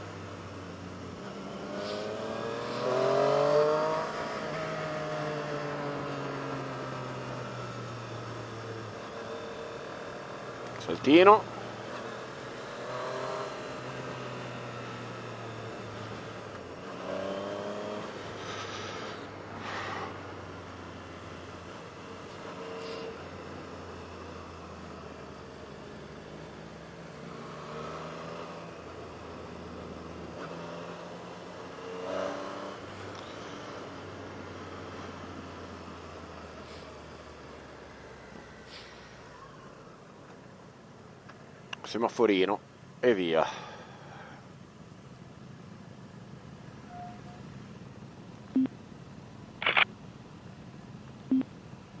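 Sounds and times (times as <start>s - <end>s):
motorcycle engine revving: 1.2s - 10.4s, 11.4s - 37.0s.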